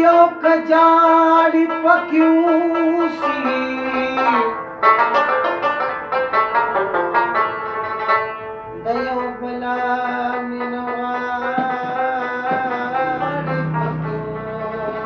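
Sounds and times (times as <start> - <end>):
man singing: 0.0 - 4.6, 8.8 - 15.0
plucked rabab notes: 0.0 - 15.0.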